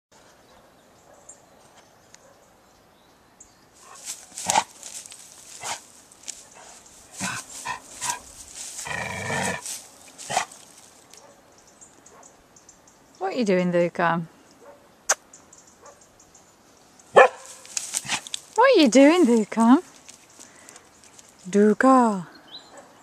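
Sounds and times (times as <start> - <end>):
close clicks and rustles: 4.0 - 8.9, 17.4 - 18.6, 19.3 - 21.5
dog barking: 11.2 - 11.4, 12.1 - 12.4, 14.6 - 14.8, 15.8 - 16.0, 17.1 - 18.2, 22.7 - 23.0.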